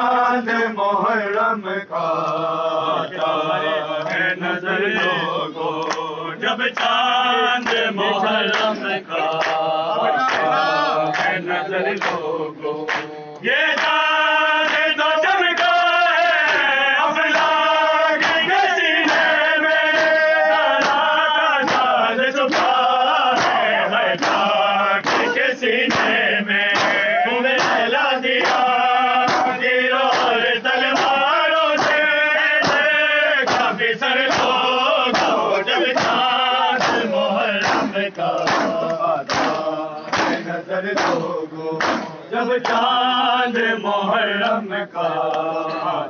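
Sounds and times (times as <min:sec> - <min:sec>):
men chanting in unison: 0:00.0 - 0:46.0
hands striking chests: 0:34.3 - 0:42.8.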